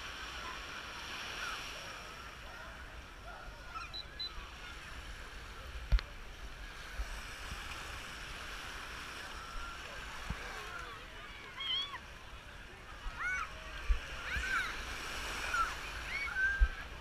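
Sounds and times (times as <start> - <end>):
crowd murmur: 0.0 - 17.0
small waves washing in: 0.0 - 17.0
children shouting: 13.1 - 17.0.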